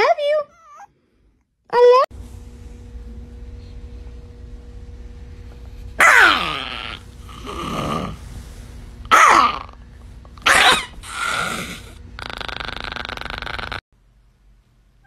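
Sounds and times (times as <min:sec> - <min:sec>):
small dog yelping barks: 0:06.0 - 0:07.0, 0:10.4 - 0:11.0
small dog growling: 0:06.0 - 0:08.2, 0:10.4 - 0:13.8.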